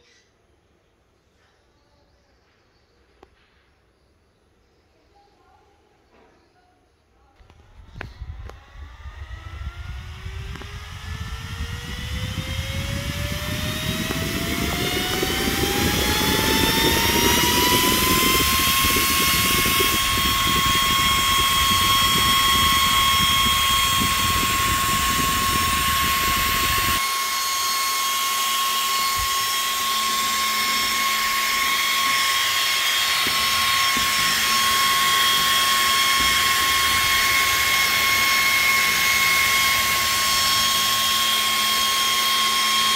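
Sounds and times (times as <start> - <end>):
cooling fan whine: 7.2 - 42.9.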